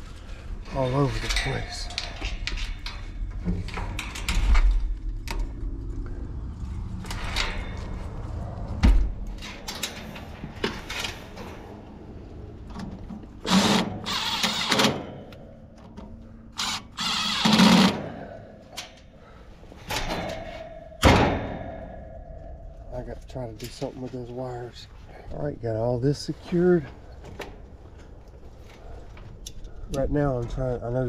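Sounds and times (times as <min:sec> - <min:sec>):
cordless drill running: 0:13.5 - 0:14.8, 0:16.6 - 0:17.9.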